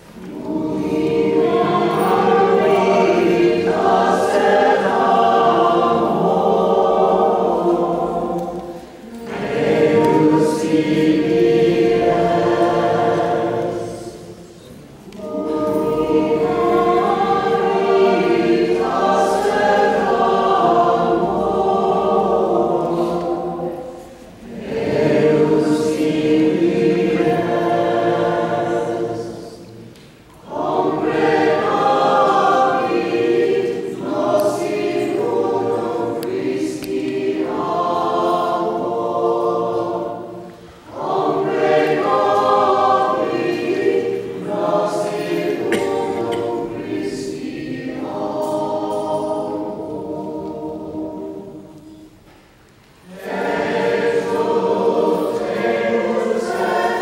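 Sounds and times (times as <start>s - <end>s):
choir singing: 0.0s - 57.0s.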